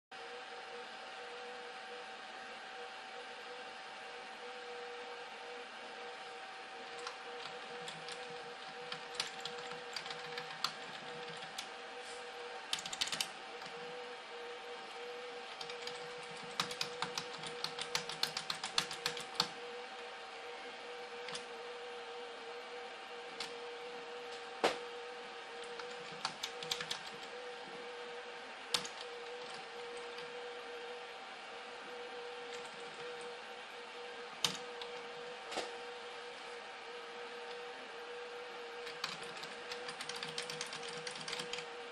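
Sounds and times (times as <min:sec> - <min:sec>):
electrical hum with faint whine: 0:00.1 - 0:41.9
computer mouse clicks: 0:06.9 - 0:11.7, 0:12.7 - 0:13.8, 0:15.5 - 0:19.6, 0:21.2 - 0:21.5, 0:23.4 - 0:23.6, 0:25.6 - 0:27.4, 0:28.7 - 0:30.3, 0:34.4 - 0:35.1, 0:38.8 - 0:41.7.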